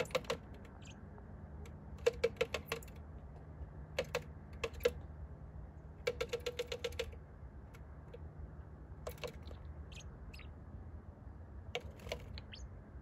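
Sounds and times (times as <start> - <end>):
bird tapping on glass: 0.0 - 1.0, 1.9 - 3.0, 3.9 - 5.0, 6.0 - 7.2, 9.0 - 9.6
high bird chirps: 0.0 - 1.1, 9.1 - 10.6, 12.0 - 12.9.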